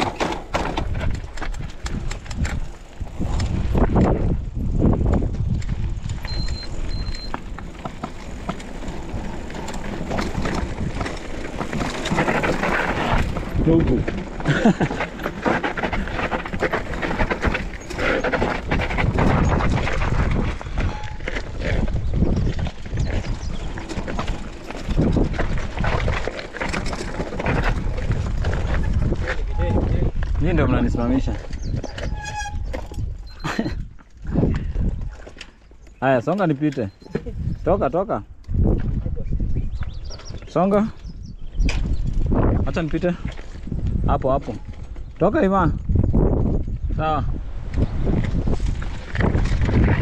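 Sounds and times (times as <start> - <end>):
wind on microphone: 0.0 - 35.3, 37.0 - 50.0
bike rattling and knocking: 0.0 - 50.0
bike tyres rumbling on dirt: 0.0 - 50.0
short high squeaks: 20.8 - 21.4, 31.9 - 33.5.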